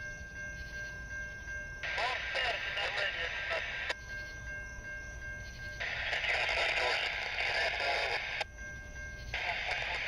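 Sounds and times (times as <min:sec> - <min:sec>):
hissy radio transmission: 0:01.8 - 0:04.0, 0:05.8 - 0:08.4, 0:09.4 - 0:10.0.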